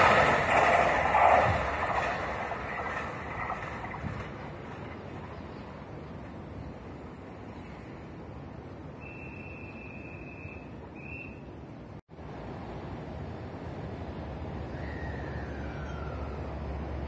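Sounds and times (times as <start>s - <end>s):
outdoor background noise: 0.0s - 17.0s
thin high whistle-like call: 9.0s - 11.5s.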